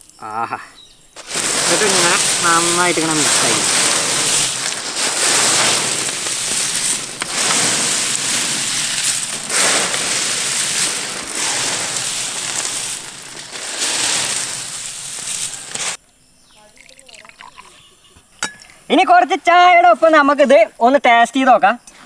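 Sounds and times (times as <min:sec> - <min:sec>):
fried chips rustling on metal tray: 0:01.2 - 0:16.0.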